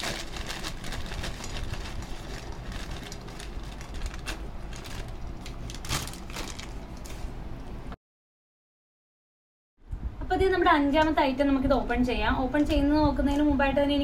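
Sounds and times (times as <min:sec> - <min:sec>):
paper bag crinkling: 0:00.0 - 0:07.3.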